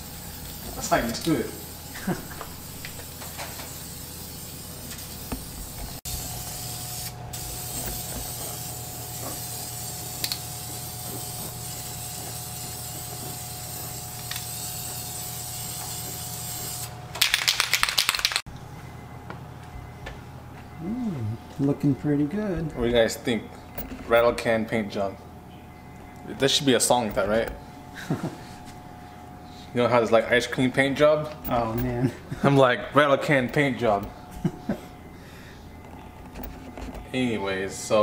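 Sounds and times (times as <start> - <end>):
spray paint can hissing: 0.0 - 18.4.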